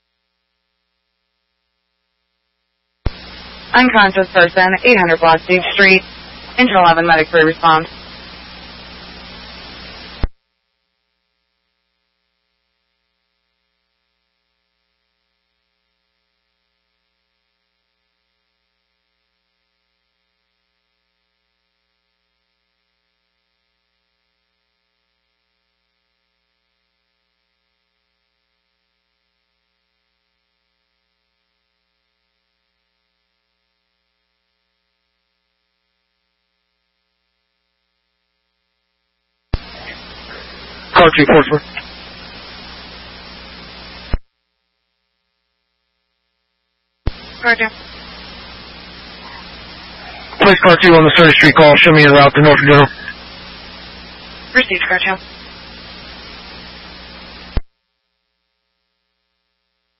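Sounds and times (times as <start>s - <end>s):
faint electrical hum with hiss: 0.0s - 59.9s
radio transmission burst: 3.1s - 10.3s, 39.6s - 44.2s, 47.1s - 57.6s.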